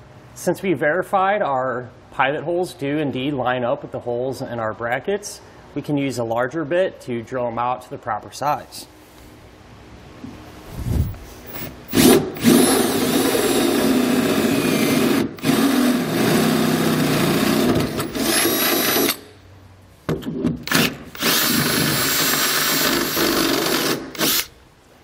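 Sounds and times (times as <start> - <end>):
cordless drill boring through metal: 11.6 - 19.3, 20.7 - 24.5.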